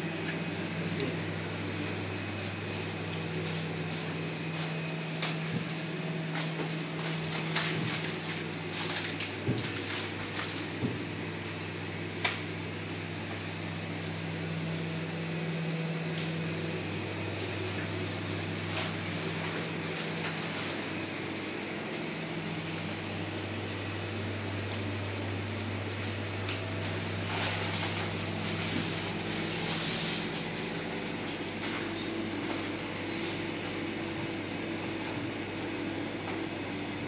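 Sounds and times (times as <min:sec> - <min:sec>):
low electrical hum: 0:00.0 - 0:37.0
packaged goods rustling: 0:04.5 - 0:10.8.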